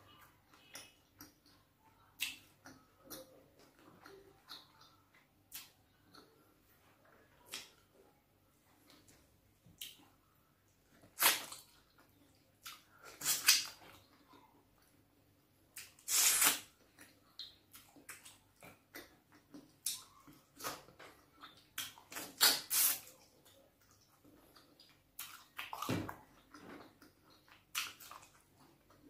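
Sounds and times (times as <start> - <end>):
wet squelching mouth noises: 11.0 - 14.0, 15.8 - 18.8, 21.4 - 23.3
wet slurps: 16.0 - 16.7, 22.2 - 23.2.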